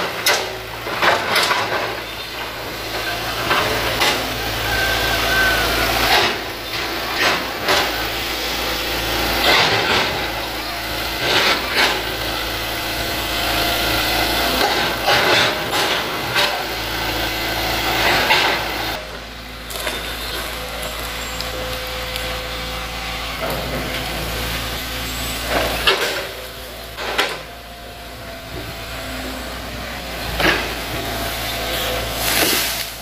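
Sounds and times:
diesel engine running: 0:00.0 - 0:33.0.

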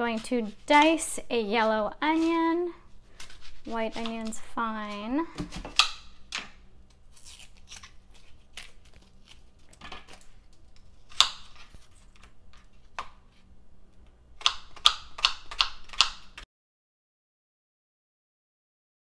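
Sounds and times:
knife chopping on plastic board: 0:03.2 - 0:06.5, 0:11.1 - 0:11.8, 0:14.4 - 0:16.4.

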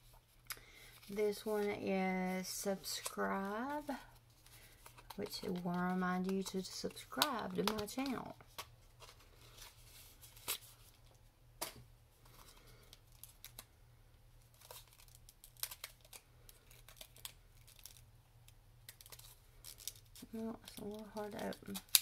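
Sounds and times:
packaging crinkling and clicking: 0:04.5 - 0:09.6, 0:14.4 - 0:18.1, 0:18.8 - 0:22.0.

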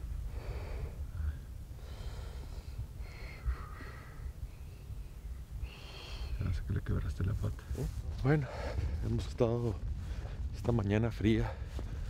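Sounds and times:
wind rumble on microphone: 0:00.0 - 0:12.0
person breathing: 0:00.2 - 0:06.4, 0:08.4 - 0:09.0.

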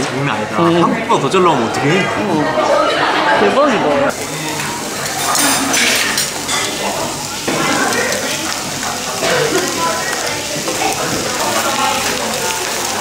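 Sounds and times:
restaurant chatter: 0:00.0 - 0:13.0
meat sizzling on a grill: 0:04.1 - 0:13.0.

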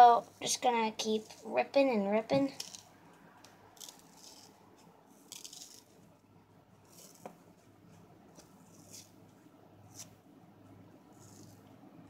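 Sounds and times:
sponge foam tearing: 0:03.8 - 0:06.0, 0:08.4 - 0:09.2, 0:11.1 - 0:11.6.

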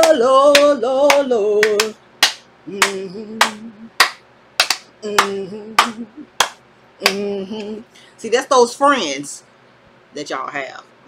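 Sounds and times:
woman singing low tune: 0:00.0 - 0:02.0, 0:02.7 - 0:04.0, 0:05.0 - 0:06.4, 0:07.0 - 0:07.9
woman clapping hands: 0:00.0 - 0:07.2.

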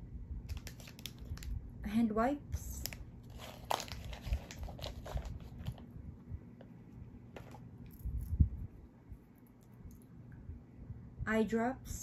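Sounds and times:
handbag rustling and clicks: 0:03.2 - 0:05.8.

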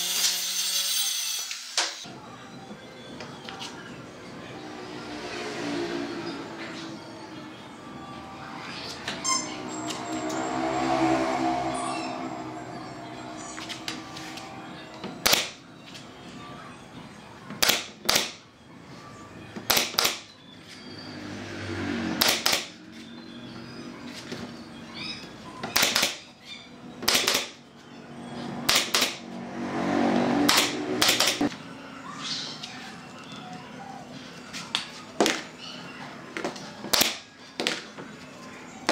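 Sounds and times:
nail gun firing into wood: 0:15.2 - 0:15.6, 0:17.6 - 0:18.4, 0:19.7 - 0:20.2, 0:25.8 - 0:26.2, 0:27.0 - 0:27.5, 0:28.7 - 0:29.2.

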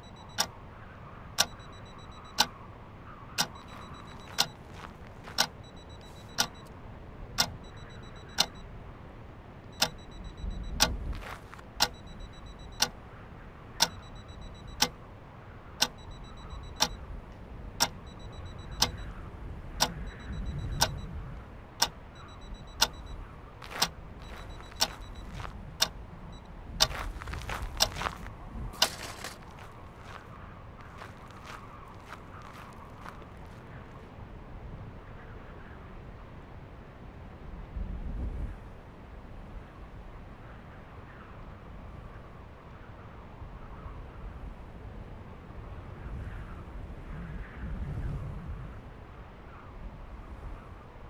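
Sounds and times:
clock ticking: 0:03.4 - 0:06.7, 0:07.4 - 0:08.6, 0:09.8 - 0:13.0, 0:13.8 - 0:15.0, 0:15.8 - 0:17.0, 0:17.8 - 0:19.1, 0:19.8 - 0:21.0, 0:21.8 - 0:26.0.

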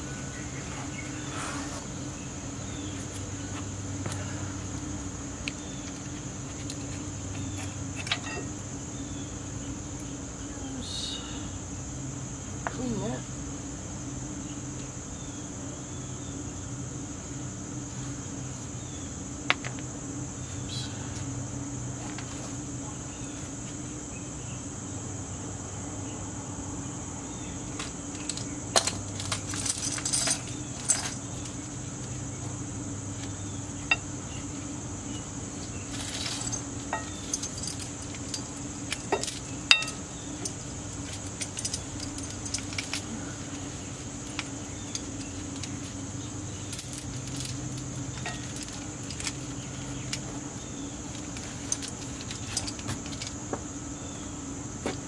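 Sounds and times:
high insect drone: 0:00.0 - 0:55.0
metal tools clinking: 0:07.4 - 0:08.5, 0:27.7 - 0:32.2, 0:35.7 - 0:43.2, 0:44.2 - 0:50.4, 0:51.1 - 0:53.4.

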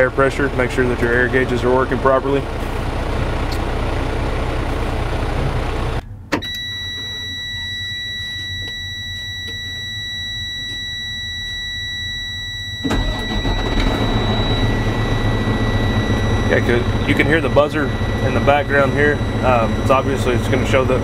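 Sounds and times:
truck engine running: 0:00.0 - 0:07.4, 0:12.8 - 0:21.0
high-pitched warning buzzer: 0:06.4 - 0:21.0.

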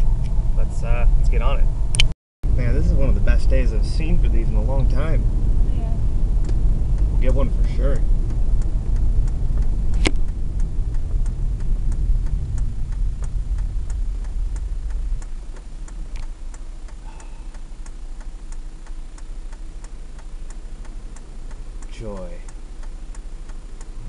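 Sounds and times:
vehicle low rumble: 0:00.0 - 0:24.0
sharp click: 0:01.9 - 0:02.1, 0:09.6 - 0:10.4
turn signal clicking: 0:04.5 - 0:24.0.

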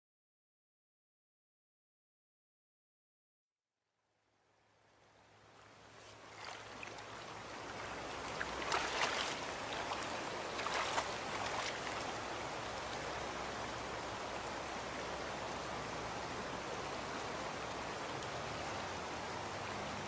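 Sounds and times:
rushing water: 0:04.6 - 0:20.0
water splashing surges: 0:05.0 - 0:20.0.

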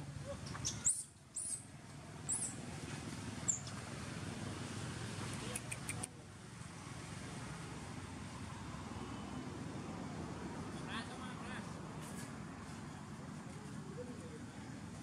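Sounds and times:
baby monkey squeaking: 0:00.4 - 0:01.7, 0:02.3 - 0:02.6, 0:03.5 - 0:03.7.

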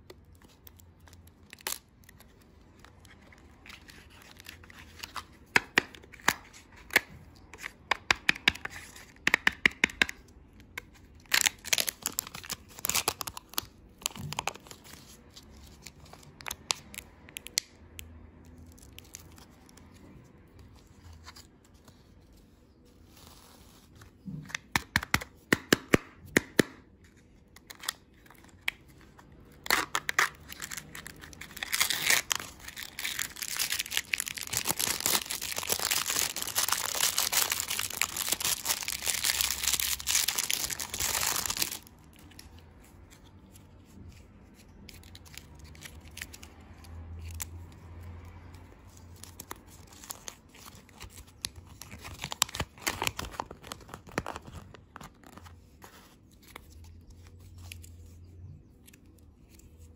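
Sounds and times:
wrappers tearing and crinkling: 0:00.2 - 0:05.2, 0:11.1 - 0:17.6, 0:27.6 - 0:42.4, 0:49.0 - 0:57.9.

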